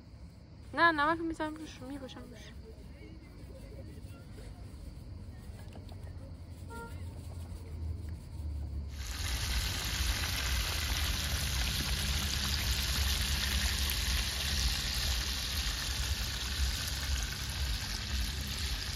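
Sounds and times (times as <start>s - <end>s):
low rumble: 5.9s - 18.9s
fish sizzling in hot oil: 8.9s - 18.9s.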